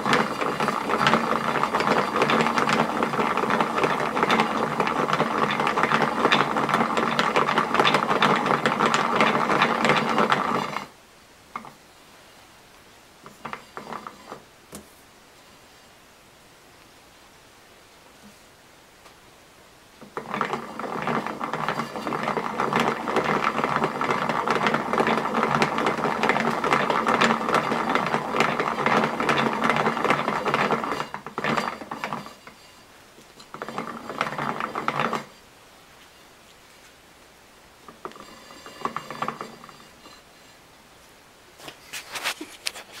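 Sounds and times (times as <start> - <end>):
wooden gear teeth clattering: 0.0 - 10.9.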